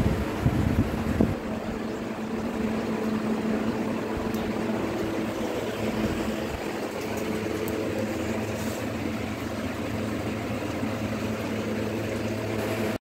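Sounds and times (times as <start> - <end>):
electric fan running: 0.0 - 13.0.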